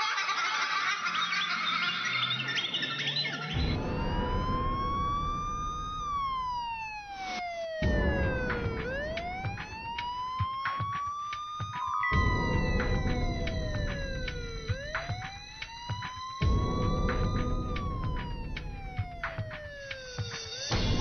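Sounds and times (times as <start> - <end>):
siren wailing: 0.4 - 21.0
low rumble: 3.6 - 7.0, 7.8 - 10.0.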